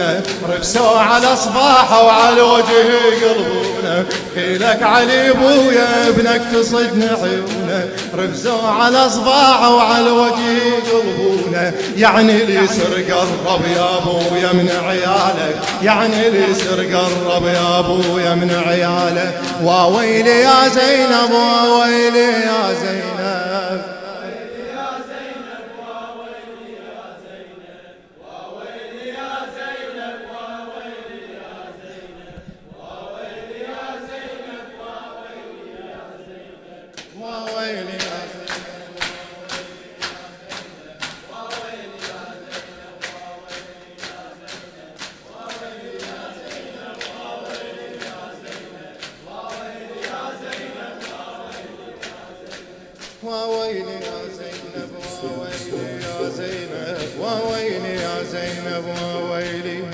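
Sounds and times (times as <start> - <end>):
chest slapping beat: 0.0 - 24.0, 37.0 - 59.9
men chanting in unison: 0.0 - 59.9.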